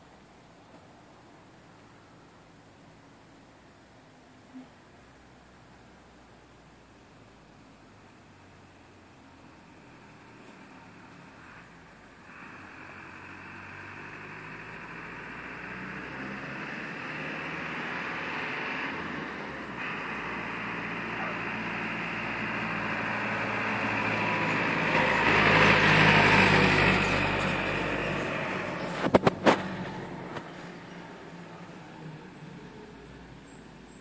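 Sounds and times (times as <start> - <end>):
vehicle passing rumble: 7.6 - 34.0.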